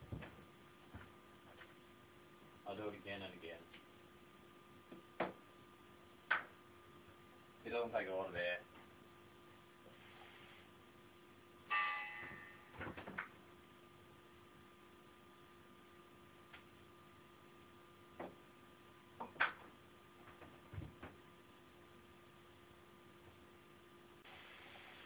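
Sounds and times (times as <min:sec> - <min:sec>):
faint steady hum: 0:00.0 - 0:25.0
short ringing sound: 0:11.7 - 0:12.8.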